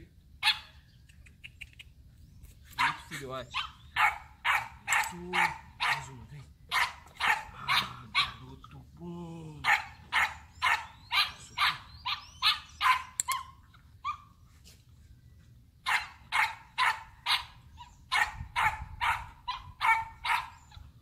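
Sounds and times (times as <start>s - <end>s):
dog barking: 0.4s - 0.7s, 2.8s - 6.1s, 6.7s - 8.4s, 9.6s - 14.3s, 15.9s - 20.6s.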